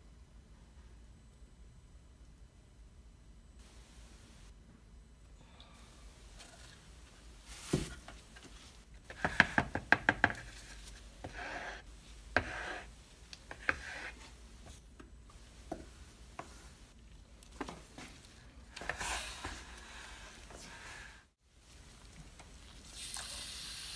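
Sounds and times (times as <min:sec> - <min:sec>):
stir stick scraping plastic cup: 0:09.1 - 0:14.3.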